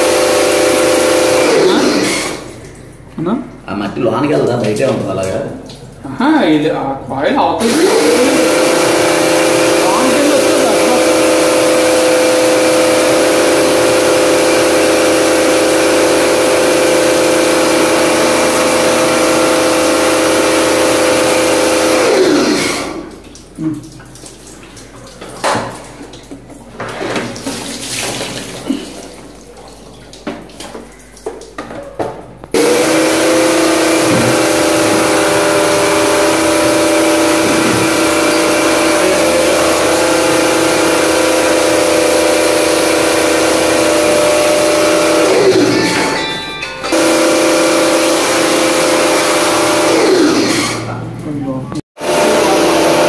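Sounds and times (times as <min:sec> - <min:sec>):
pressure washer motor humming: 0:00.0 - 0:02.8, 0:07.6 - 0:23.4, 0:32.5 - 0:51.4, 0:52.0 - 0:53.0
water jet hissing: 0:07.6 - 0:31.5, 0:32.5 - 0:45.9.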